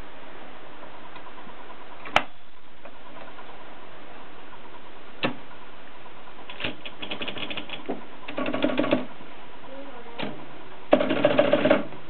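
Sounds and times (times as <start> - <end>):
typewriter clacking: 6.5 - 9.0.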